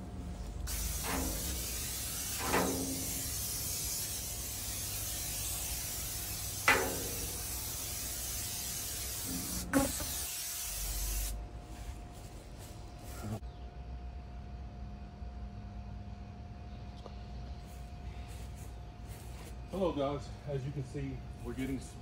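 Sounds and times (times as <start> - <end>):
aerosol spray hissing: 0.6 - 11.4
sharp knocks on metal: 6.6 - 7.4.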